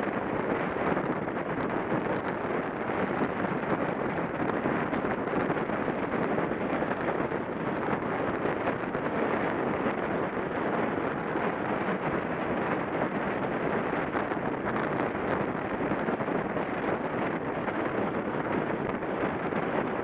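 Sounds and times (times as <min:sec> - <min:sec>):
bicycle tyres rolling: 0:00.0 - 0:20.0
wind rushing over microphone: 0:00.0 - 0:20.0.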